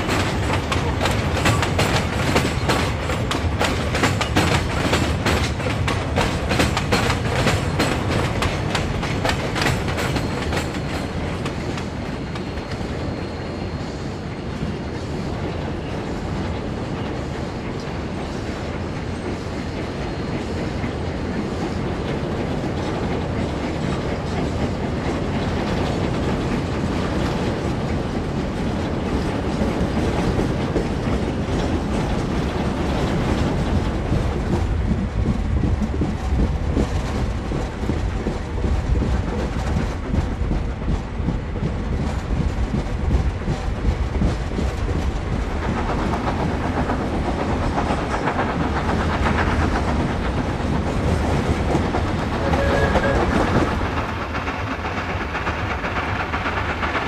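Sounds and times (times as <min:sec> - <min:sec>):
steam locomotive working: 0:00.0 - 0:57.0
train wheels clicking over rail joints: 0:00.0 - 0:57.0
steady rolling rumble: 0:26.0 - 0:57.0.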